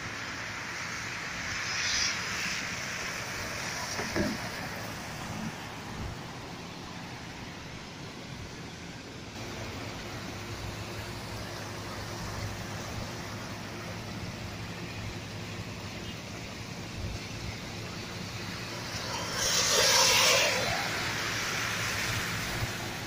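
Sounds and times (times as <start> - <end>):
rushing water: 0.0 - 23.0
traffic: 0.0 - 23.0
car tyres splashing water: 18.6 - 23.0.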